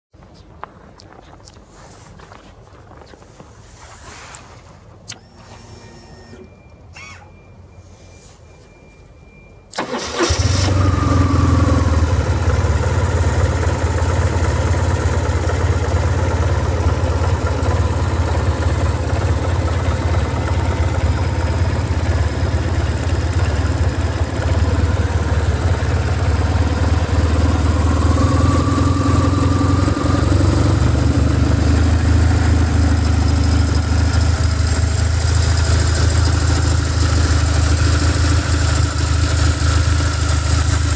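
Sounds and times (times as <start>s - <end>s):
motorcycle starter cranking: 9.7s - 11.0s
motorcycle engine idling: 11.5s - 40.9s.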